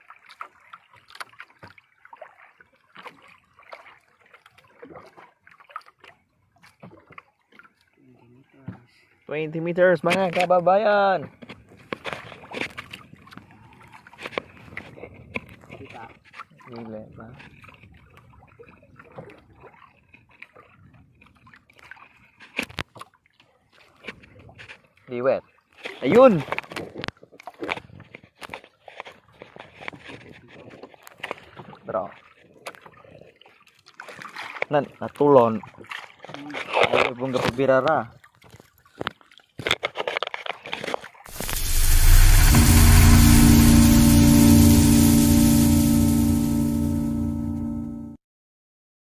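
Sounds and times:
water lapping against boat hull: 0.0s - 9.3s, 10.0s - 41.2s.

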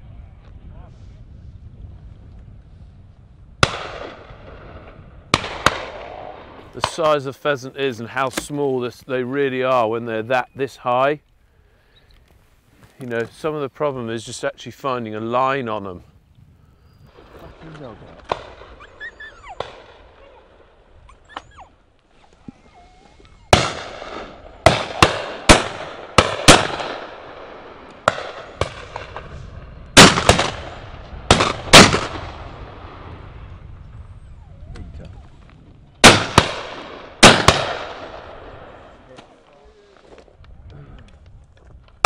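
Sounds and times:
shotgun shots: 3.6s - 7.2s, 17.2s - 18.8s, 23.5s - 29.3s, 30.0s - 33.1s, 36.0s - 39.3s.

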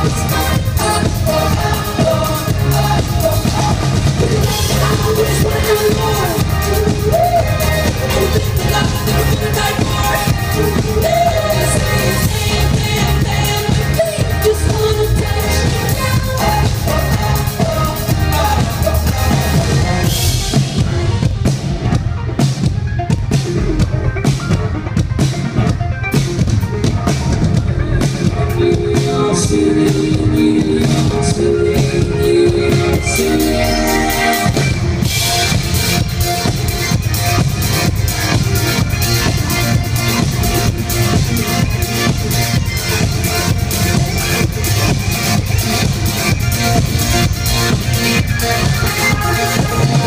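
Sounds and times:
lead singing: 0.0s - 20.9s, 28.3s - 35.1s
bass: 0.0s - 50.0s
drum kit beat: 0.0s - 50.0s.

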